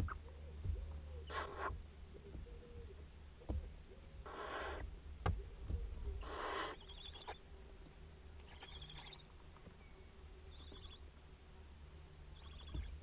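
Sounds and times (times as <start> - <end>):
steady low hum: 0.0 - 13.0
owlets squeaky twittering calls: 5.8 - 7.5, 8.4 - 9.3, 10.4 - 11.1, 12.4 - 13.0.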